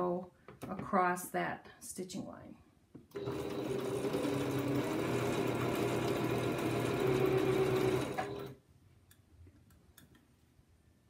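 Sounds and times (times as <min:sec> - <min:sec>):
electric sewing machine running: 0:03.1 - 0:08.6.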